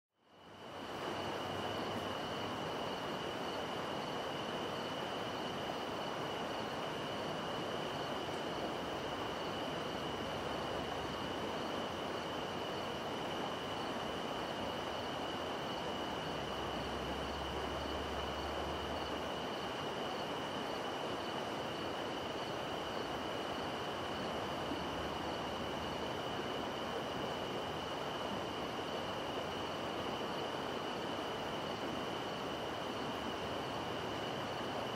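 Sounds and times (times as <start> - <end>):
faint pulsing insect call: 0.2 - 34.9
night insects droning: 0.2 - 34.9
distant river rushing: 0.3 - 34.9.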